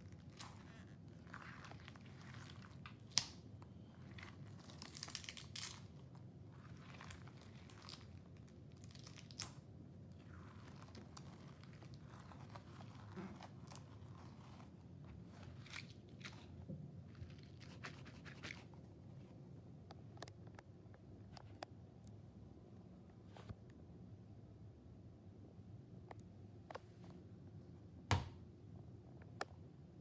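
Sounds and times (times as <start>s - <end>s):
squishy ball crinkling and squishing: 0.0s - 20.6s.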